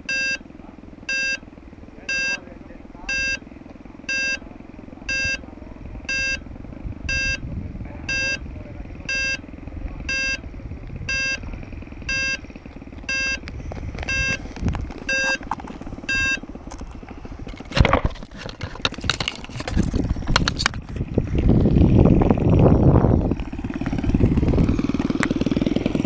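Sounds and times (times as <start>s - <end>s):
short electronic beeps: 0.0s - 0.4s, 1.1s - 1.4s, 2.1s - 2.4s, 3.1s - 3.4s, 4.1s - 4.4s, 5.1s - 5.4s, 6.1s - 6.4s, 7.1s - 7.4s, 8.1s - 8.4s, 9.1s - 9.4s, 10.1s - 10.4s, 11.1s - 11.4s, 12.1s - 12.4s, 13.1s - 13.4s, 14.1s - 14.4s, 15.1s - 15.4s, 16.1s - 16.4s
steady low rumble: 0.0s - 26.0s
clicks and knocks of handling: 17.5s - 21.1s.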